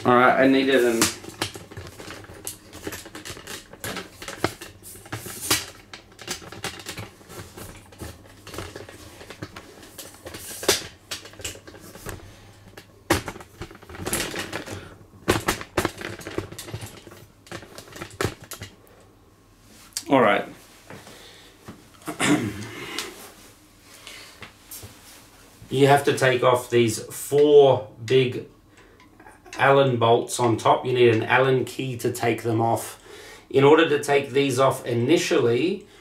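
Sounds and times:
tools being handled: 0.0s - 18.8s.

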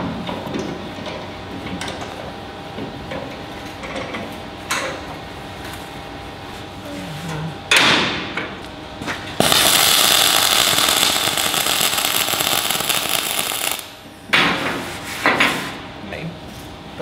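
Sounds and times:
welding arc crackling and hissing: 9.4s - 14.1s.

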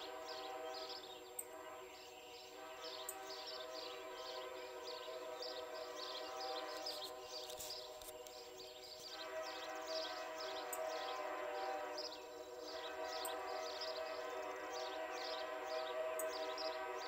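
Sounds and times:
train air horn chord: 0.0s - 17.0s.

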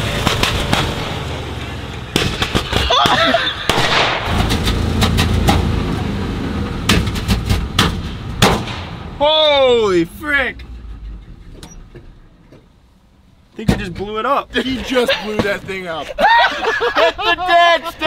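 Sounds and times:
misfiring truck engine sputtering: 0.0s - 16.0s
backfire pops and bangs: 2.1s - 5.7s, 6.9s - 9.2s.

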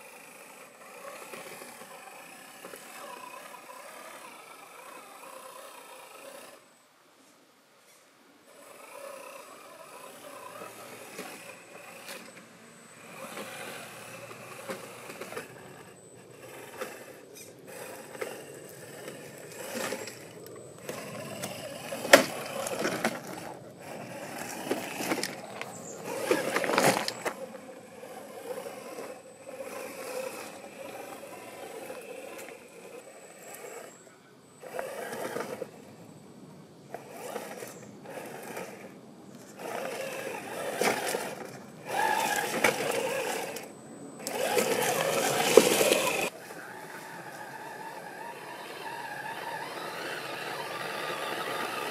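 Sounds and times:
electric motor whirring: 0.0s - 6.6s, 8.5s - 34.0s, 34.6s - 36.0s, 36.9s - 51.9s
tyres scraping on stone: 13.0s - 34.0s, 36.9s - 46.4s.

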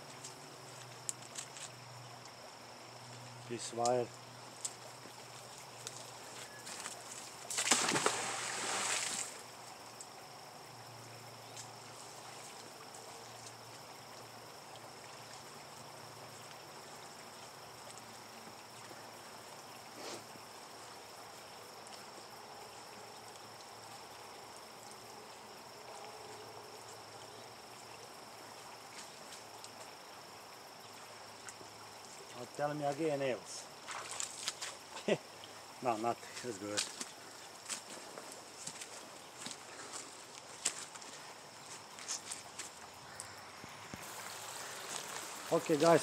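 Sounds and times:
high insect drone: 0.0s - 46.0s
magnet splashing into river: 7.5s - 9.4s.

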